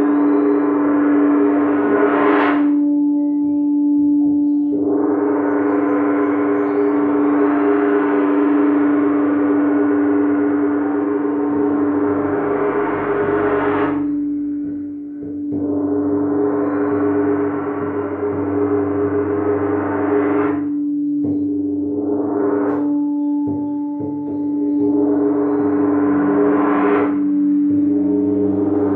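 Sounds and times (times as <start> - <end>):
crystal singing bowls ringing: 22.8 - 26.6.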